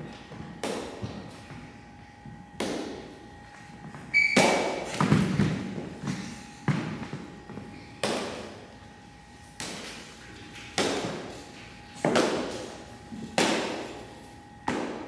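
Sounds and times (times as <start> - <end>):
sneaker squeak: 4.0 - 6.4, 7.6 - 8.0
practice swords striking: 13.3 - 14.0.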